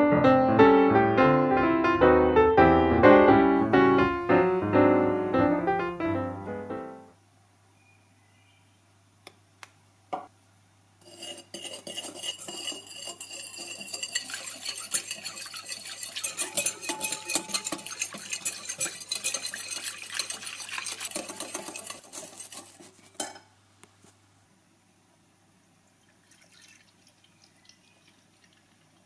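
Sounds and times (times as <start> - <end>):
utensil clinking against bowl: 11.0 - 23.4.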